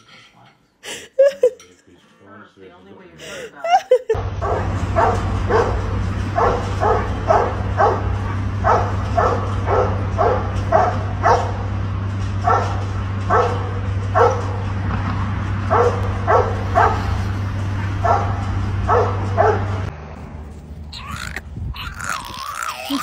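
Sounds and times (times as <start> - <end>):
steady low hum: 4.2 - 21.9.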